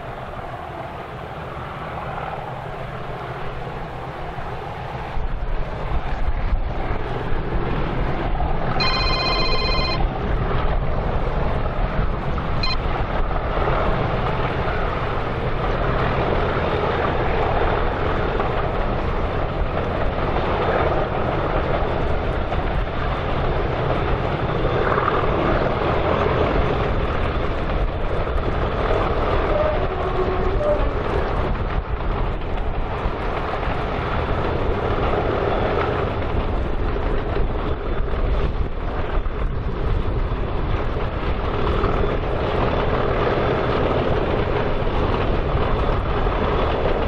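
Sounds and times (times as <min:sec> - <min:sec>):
wind buffeting microphone: 0:00.0 - 0:08.8, 0:09.7 - 0:47.0
diesel locomotives roaring: 0:00.0 - 0:47.0
brief high-pitched tone: 0:08.8 - 0:10.0, 0:12.6 - 0:12.8.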